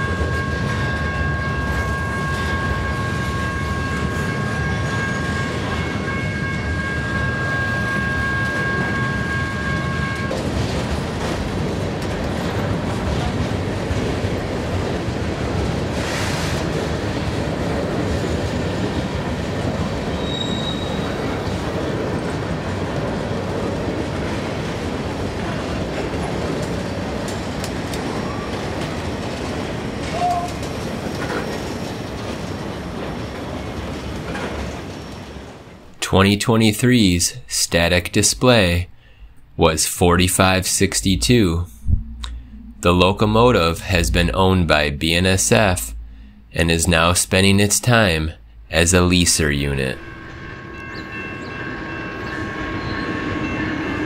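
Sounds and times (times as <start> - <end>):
train wheels rumbling on rail: 0.0 - 36.0
high squeal: 20.2 - 21.3.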